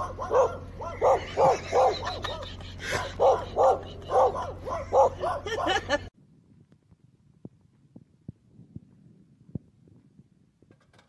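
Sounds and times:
dog barking: 0.0 - 5.9.

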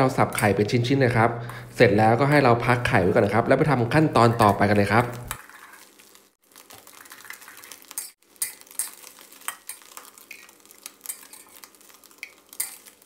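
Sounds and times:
spatula scraping and tapping a pan: 4.3 - 5.9, 6.7 - 13.0.

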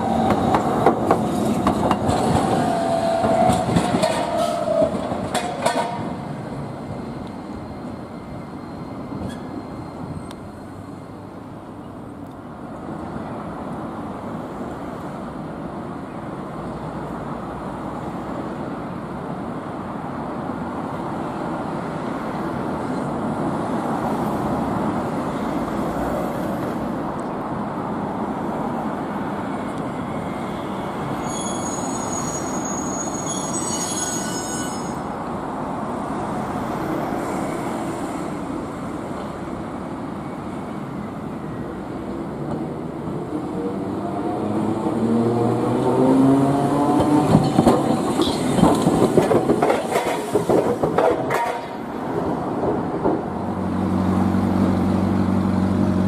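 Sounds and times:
wheels squealing against rails: 0.0 - 11.3, 29.5 - 35.2, 47.2 - 51.8
road traffic rumble: 0.0 - 56.0
streetcar running on track: 0.0 - 56.0.

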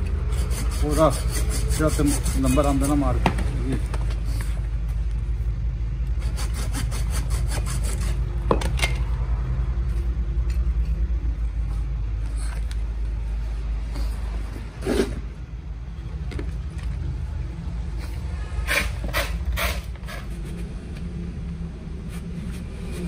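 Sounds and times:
hacksaw rasping on metal plates: 0.0 - 3.1, 6.2 - 8.3
steady low hum: 0.0 - 23.0.

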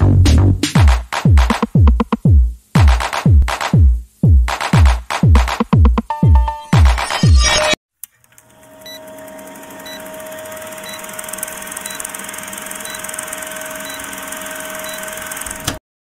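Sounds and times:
electronic music: 0.0 - 7.8
film projector whirring: 8.2 - 15.8.

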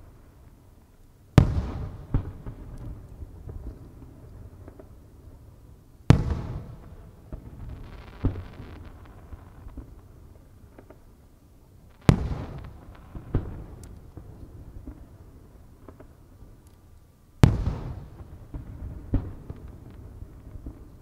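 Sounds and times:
firework crackle: 0.0 - 21.0
firework booms with echo: 1.4 - 3.8, 6.1 - 10.1, 12.0 - 15.1, 17.4 - 21.0
smaller firework bangs: 1.4 - 5.4, 6.0 - 11.2, 11.8 - 16.2, 17.4 - 21.0.

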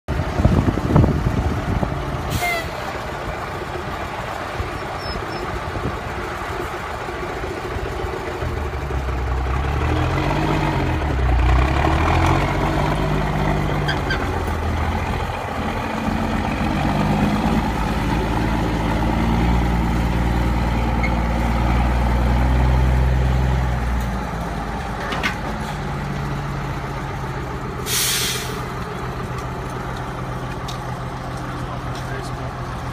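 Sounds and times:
diesel truck engine revving: 0.1 - 32.9
sharp hiss of air: 27.8 - 28.7.

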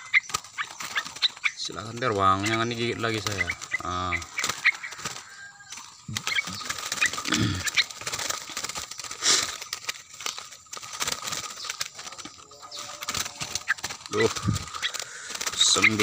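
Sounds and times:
bird chirps: 0.0 - 16.0
birds fluttering in a cage: 0.0 - 16.0
cage rustling and clicking: 0.0 - 16.0.

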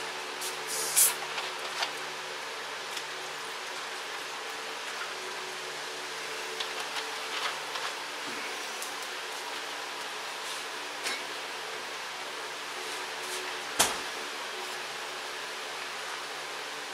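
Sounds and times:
kitchen room hum: 0.0 - 16.9
drink can opening hiss: 0.4 - 1.3.

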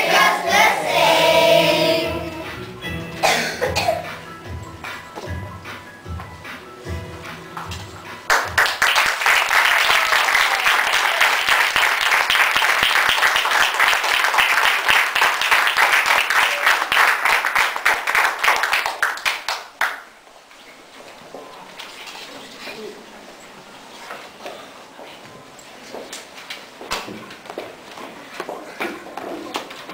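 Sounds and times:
audience applauding: 8.3 - 20.1.

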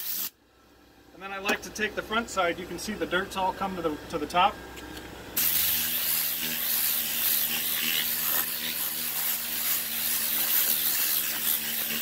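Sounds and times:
compressed air hissing: 0.0 - 0.3, 5.4 - 12.0.

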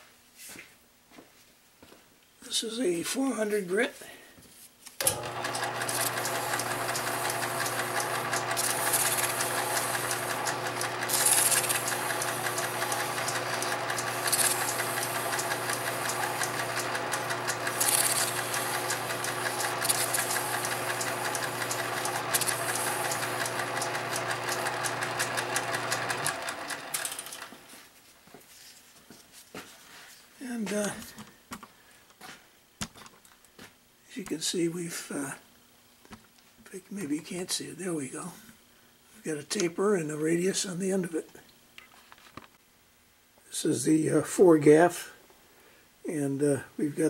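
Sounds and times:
metal lathe humming: 5.0 - 27.5
sandpaper hissing on spinning part: 5.7 - 26.3.

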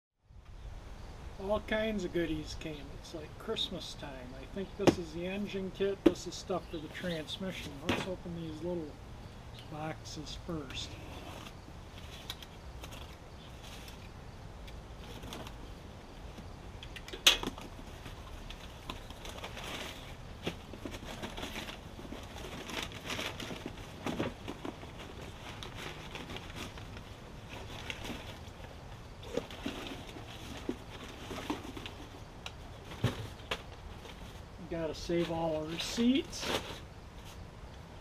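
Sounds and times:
packing paper rustling and crinkling: 11.2 - 14.1, 15.0 - 15.6, 17.5 - 37.4.

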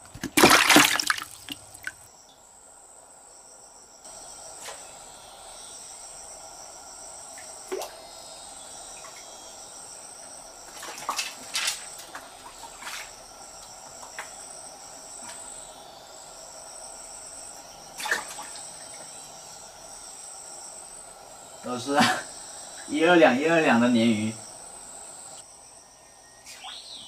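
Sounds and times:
insect chorus: 0.0 - 27.0
water splashes: 0.1 - 2.0, 10.7 - 13.1, 18.0 - 18.6.

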